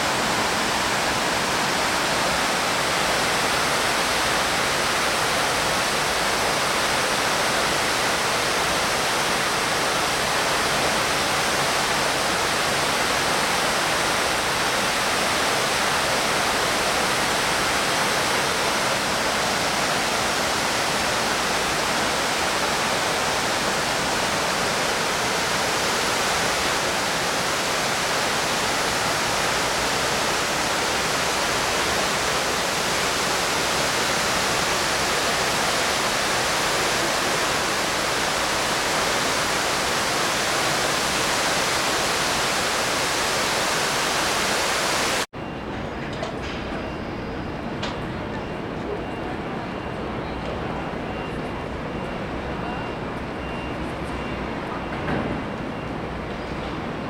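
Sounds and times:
waterfall rushing into basin: 0:00.0 - 0:45.3.

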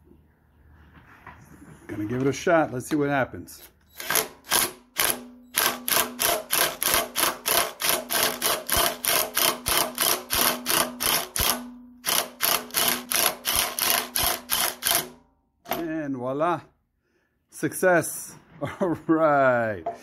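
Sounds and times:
impact wrench hammering: 0:04.0 - 0:16.0.

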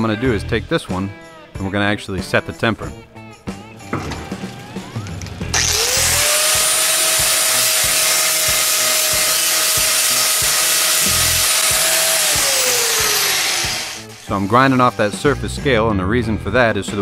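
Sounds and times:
angle grinder grinding metal: 0:03.6 - 0:15.4.

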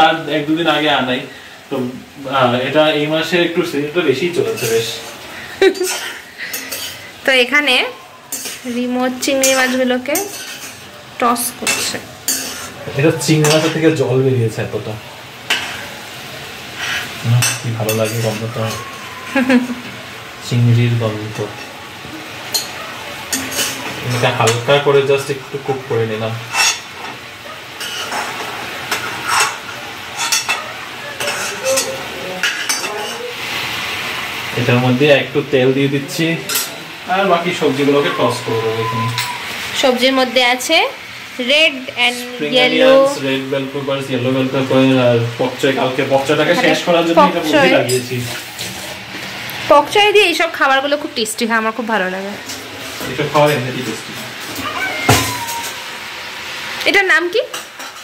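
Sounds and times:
hot oil sizzling: 0:00.0 - 0:58.0
metal spatula scraping wok: 0:04.3 - 0:07.2, 0:08.3 - 0:11.0, 0:11.6 - 0:13.9, 0:16.8 - 0:18.8, 0:22.5 - 0:25.0, 0:26.5 - 0:27.2, 0:27.8 - 0:33.6, 0:46.6 - 0:49.4.

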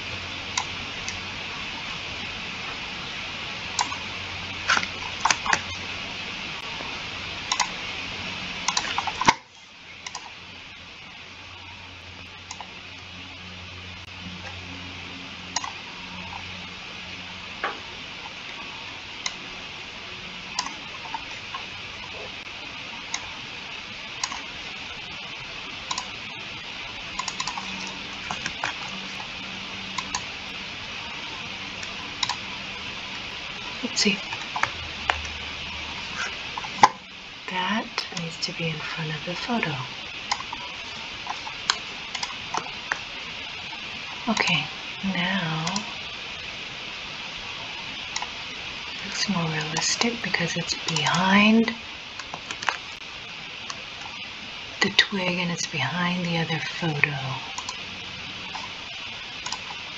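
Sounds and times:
steady hiss and low hum: 0:00.0 - 0:59.9
computer mouse clicking: 0:03.8 - 0:04.0, 0:07.5 - 0:07.7, 0:08.6 - 0:09.4, 0:10.0 - 0:10.3, 0:20.6 - 0:20.8, 0:24.2 - 0:24.4, 0:25.9 - 0:26.1, 0:27.2 - 0:29.3, 0:29.9 - 0:30.3, 0:31.8 - 0:32.4, 0:40.3 - 0:40.6, 0:41.3 - 0:43.0, 0:57.6 - 0:57.8, 0:59.4 - 0:59.8
mouse and keyboard clicks: 0:07.5 - 0:07.7, 0:27.2 - 0:27.7.

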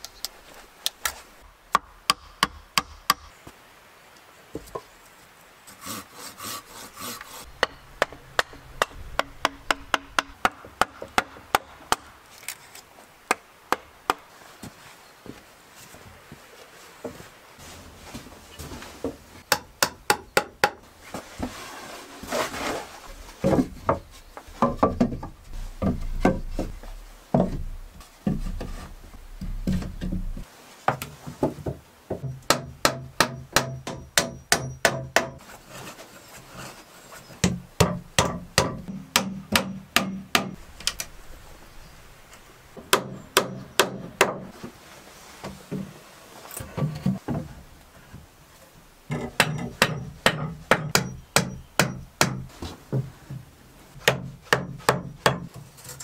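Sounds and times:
hammer striking wood: 0:01.8 - 0:03.3, 0:07.6 - 0:12.1, 0:32.2 - 0:35.4, 0:37.4 - 0:40.6, 0:42.8 - 0:44.5, 0:49.1 - 0:52.5
wood rubbing and scraping: 0:04.6 - 0:11.6, 0:20.9 - 0:31.8, 0:35.4 - 0:38.1.

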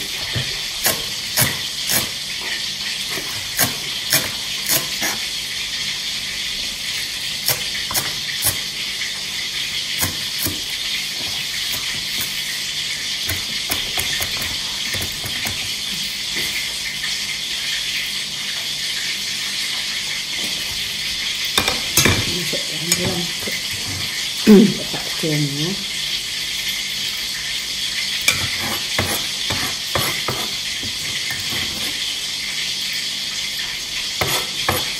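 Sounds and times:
knife chopping on plastic board: 0:00.3 - 0:02.2, 0:10.0 - 0:12.4, 0:13.2 - 0:15.7, 0:28.3 - 0:31.9, 0:34.2 - 0:34.9.

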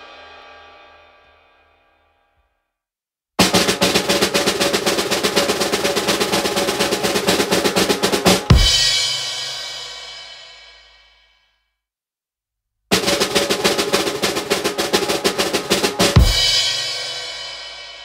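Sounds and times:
snare drum roll: 0:00.0 - 0:01.0, 0:03.4 - 0:10.1, 0:12.9 - 0:18.0
cymbal crash: 0:00.0 - 0:02.1.

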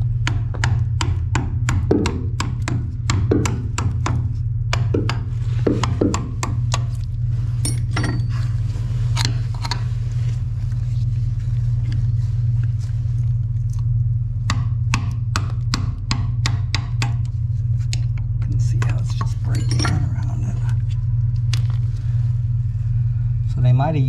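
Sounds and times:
steady low hum: 0:00.0 - 0:24.0
chisel tapping: 0:00.2 - 0:06.9, 0:14.5 - 0:17.3.

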